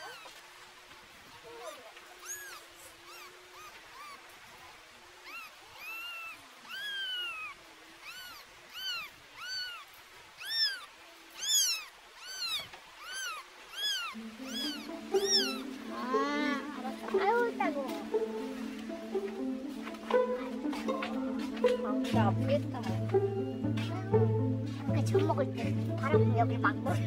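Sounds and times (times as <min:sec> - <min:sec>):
kitten mewing: 0:01.5 - 0:04.3, 0:05.2 - 0:16.7.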